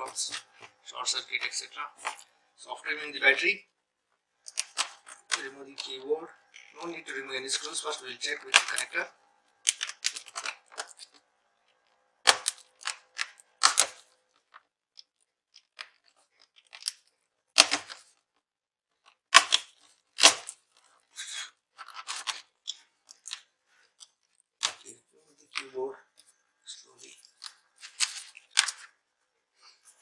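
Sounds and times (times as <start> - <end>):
plastic clicks and crackles: 4.4 - 7.0, 8.5 - 9.0, 9.6 - 29.0.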